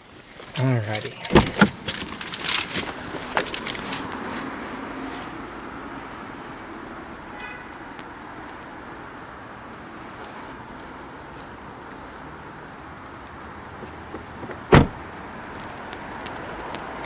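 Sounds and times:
steady background noise: 0.0 - 17.0
rustling and knocks: 0.9 - 4.1
car door latch click: 1.2 - 2.1, 14.7 - 15.0.

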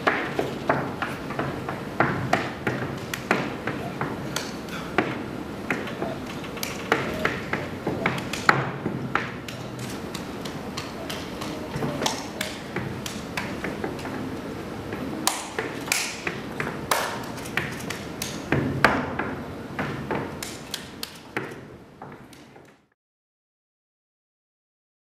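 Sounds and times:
hands clapping and slapping: 2.4 - 3.6, 4.3 - 14.2, 15.3 - 18.5, 20.2 - 21.6.

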